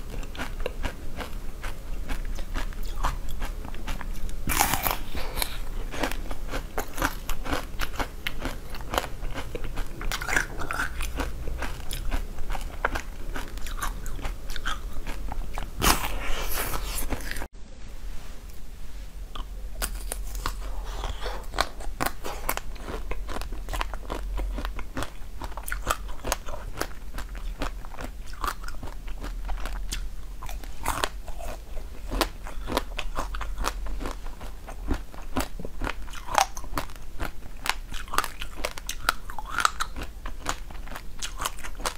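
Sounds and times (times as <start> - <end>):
chewing frozen chocolate crunches: 0.0 - 17.5, 19.8 - 41.9.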